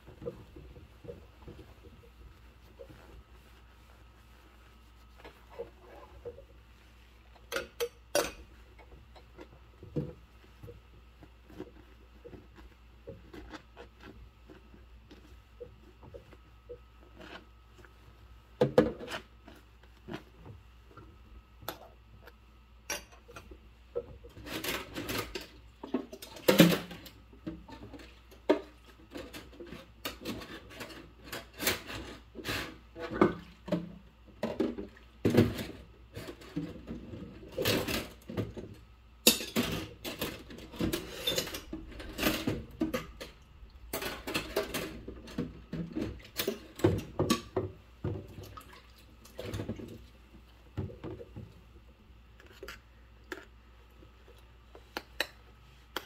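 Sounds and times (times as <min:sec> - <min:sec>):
rubber glove rubbing on cup: 0:00.0 - 0:07.4, 0:09.6 - 0:18.4
water splashing and sloshing: 0:39.6 - 0:51.6.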